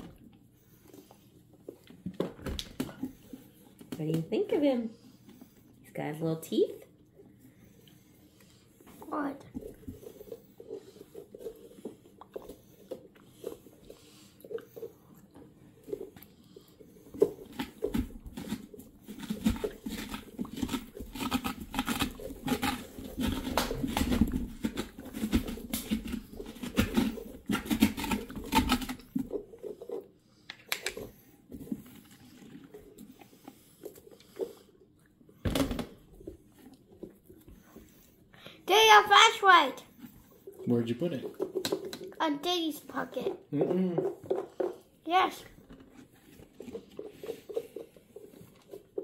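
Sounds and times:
blade sawing through pumpkin rind: 0:17.2 - 0:29.4.

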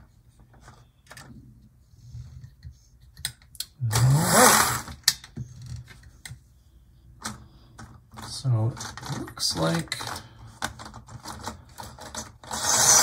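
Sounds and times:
model locomotive motor whirring: 0:12.4 - 0:13.0.

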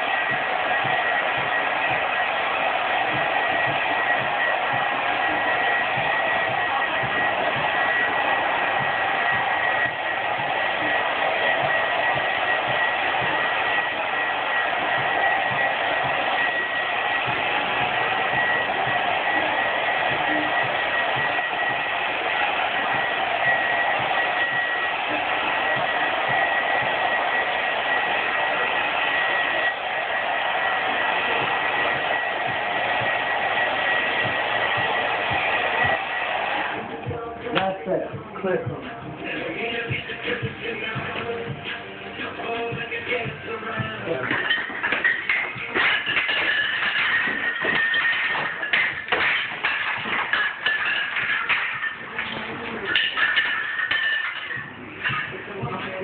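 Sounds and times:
heat gun blowing: 0:00.0 - 0:36.9.

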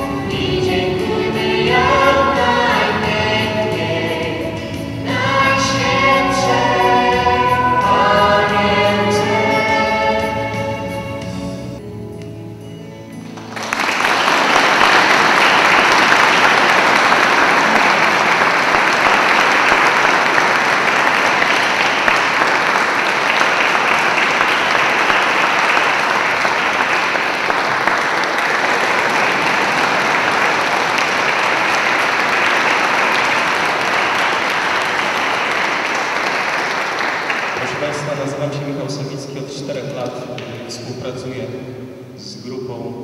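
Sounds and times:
audience applauding: 0:13.2 - 0:39.0.

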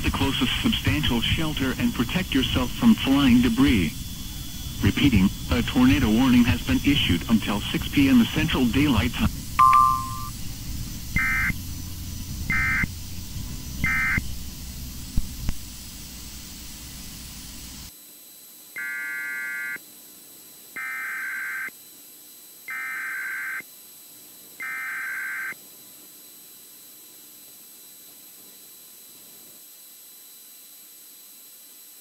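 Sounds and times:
harsh warbling data bursts: 0:00.0 - 0:10.4, 0:11.1 - 0:13.0, 0:13.7 - 0:14.3
radio hiss: 0:00.0 - 0:17.9.

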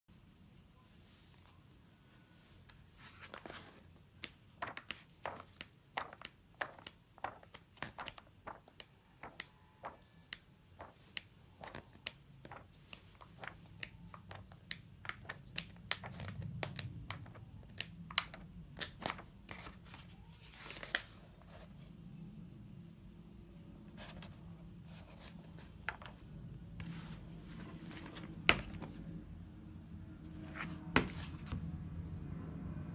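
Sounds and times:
paper pages turning: 0:02.7 - 0:21.7, 0:23.9 - 0:29.2, 0:30.3 - 0:31.8.

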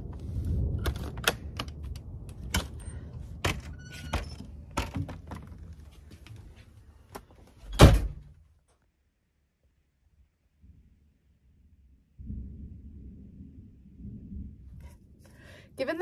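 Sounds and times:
distant thunder rumbling: 0:00.0 - 0:05.7, 0:11.9 - 0:16.0.

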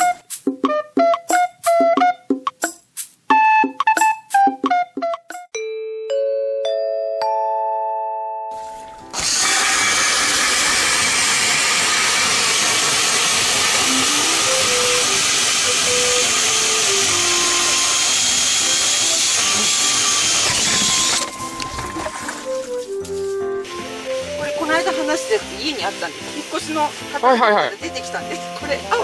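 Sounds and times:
power ice auger drilling: 0:09.0 - 0:22.8.

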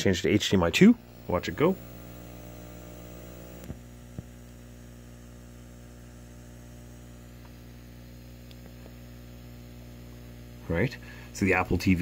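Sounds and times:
mains hum and buzz: 0:00.0 - 0:12.0
faint hiss: 0:00.8 - 0:03.8.

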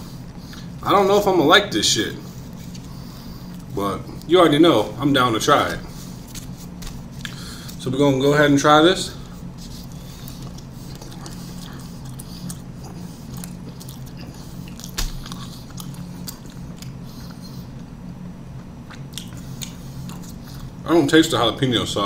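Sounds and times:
steady low hum: 0:00.0 - 0:22.0
person chewing food: 0:02.2 - 0:04.3, 0:05.8 - 0:07.8, 0:09.3 - 0:20.8.

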